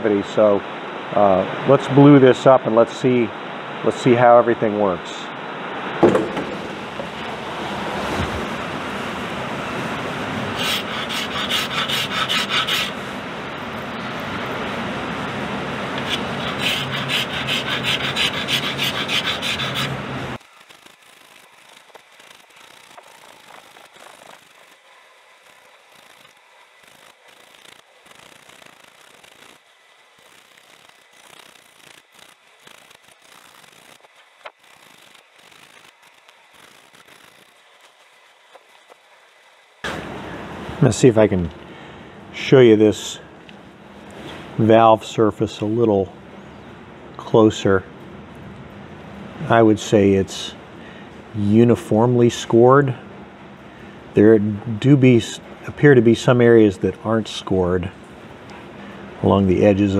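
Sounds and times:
hand scraper scraping metal: 10.6 - 13.0, 16.0 - 20.0.

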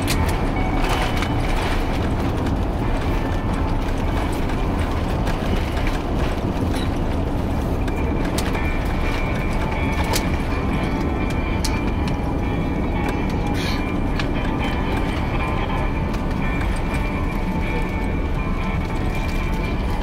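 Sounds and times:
aircraft cabin rumble: 0.0 - 20.0.

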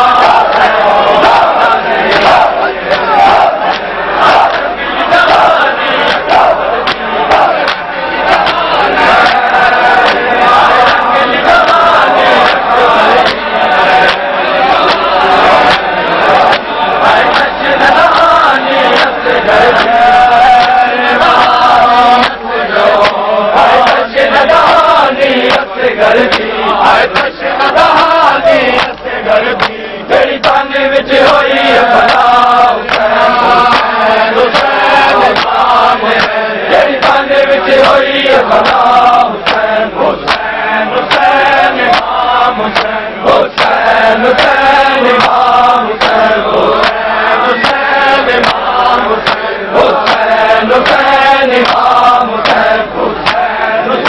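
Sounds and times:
crowd of men chanting: 0.0 - 54.0
hand slaps on bare chests: 2.1 - 4.7, 6.0 - 8.6, 9.2 - 9.4, 10.0 - 11.0, 12.4 - 16.7, 18.9 - 20.0, 22.2 - 22.4, 23.0 - 23.2, 26.3 - 26.5, 28.8 - 29.8, 32.0 - 32.3, 32.9 - 33.1, 33.7 - 35.6, 36.2 - 36.4, 37.8 - 38.8, 39.4 - 40.5, 41.1 - 41.3, 42.7 - 42.9, 43.5 - 43.8, 45.2 - 45.4, 46.0 - 46.2, 47.6 - 47.8, 48.4 - 50.2, 50.8 - 53.5.

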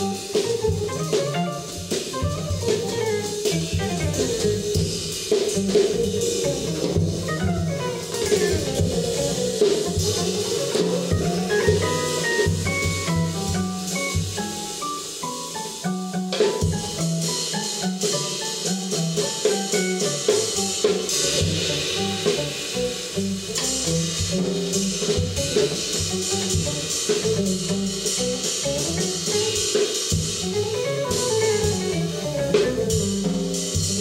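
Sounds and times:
drums and cymbals: 0.0 - 34.0
electric guitar playing: 5.6 - 14.7, 30.4 - 33.7.

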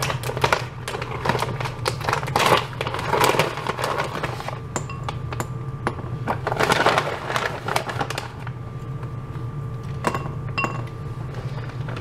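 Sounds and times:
plastic bags crinkling: 0.0 - 4.7, 6.4 - 8.5
steady low hum: 0.0 - 12.0.

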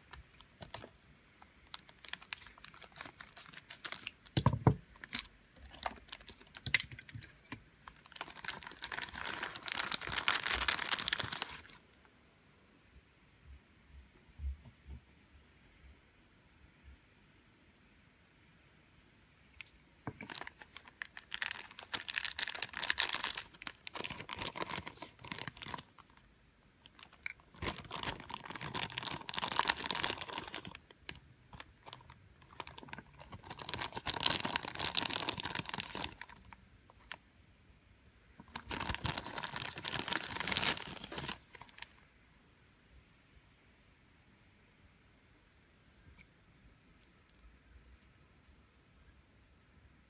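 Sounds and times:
plastic bag crinkling: 1.6 - 11.8, 20.1 - 37.2, 38.4 - 42.0.

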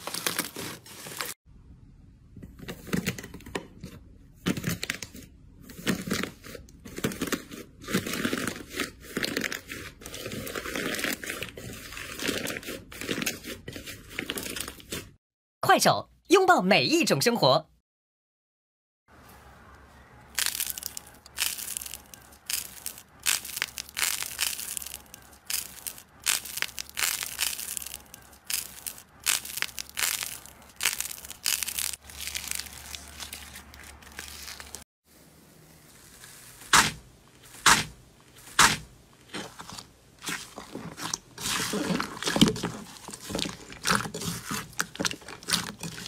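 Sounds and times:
stress balls crackling when squeezed: 20.3 - 34.8.

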